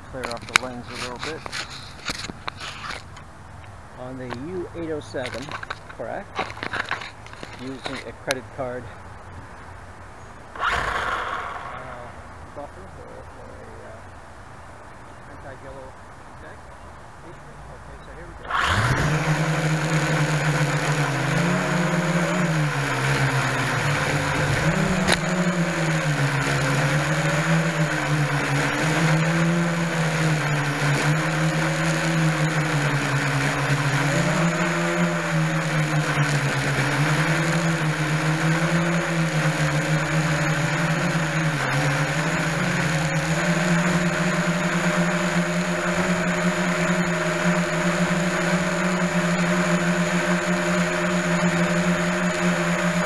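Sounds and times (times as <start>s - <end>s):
quadcopter motors buzzing: 0.0s - 3.3s, 4.0s - 9.1s, 10.4s - 14.2s, 15.3s - 53.0s.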